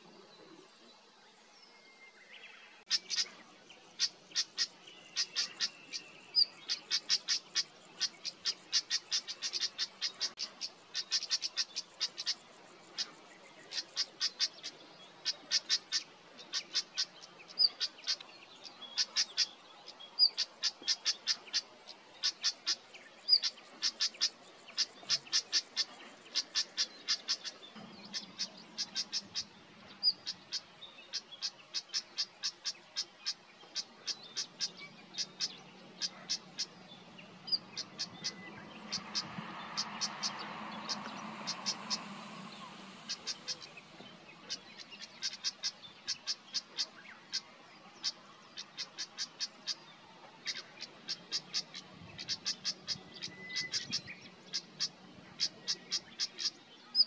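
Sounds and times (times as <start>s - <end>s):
bird clicking calls: 20.2s - 29.5s, 44.5s - 47.4s.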